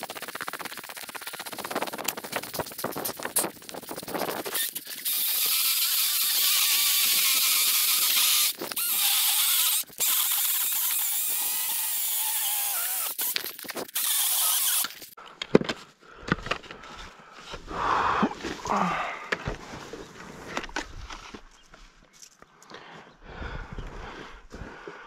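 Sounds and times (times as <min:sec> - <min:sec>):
electric saw cutting wood: 0:04.5 - 0:15.1.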